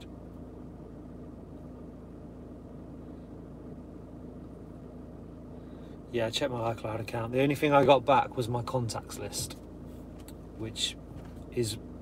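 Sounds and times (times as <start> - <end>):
low hum inside van: 0.0 - 12.0.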